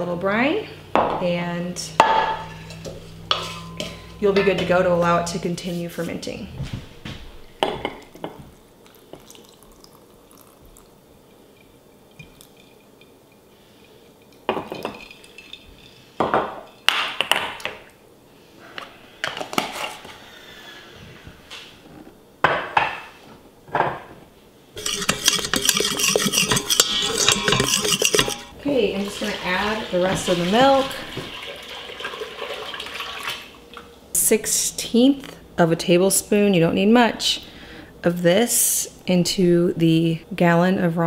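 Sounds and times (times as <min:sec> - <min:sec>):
glass jar and lid clinking: 0:24.8 - 0:28.5
wooden spoon stirring milk in pot: 0:24.8 - 0:31.3.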